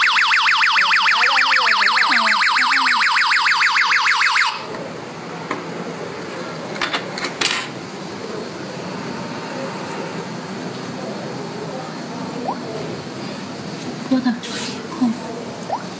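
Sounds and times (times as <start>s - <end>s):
alarm siren warbling: 0.0s - 4.7s.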